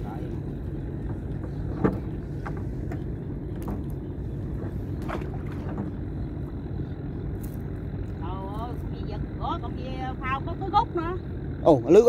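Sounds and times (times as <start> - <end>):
net hauled into boat: 0.0 - 6.5
low rumble: 0.0 - 12.0.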